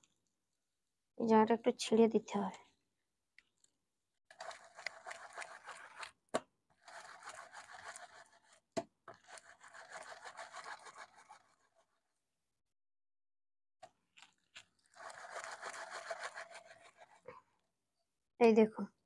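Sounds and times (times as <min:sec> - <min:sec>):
fruit scraping on metal plate: 0:14.9 - 0:17.3.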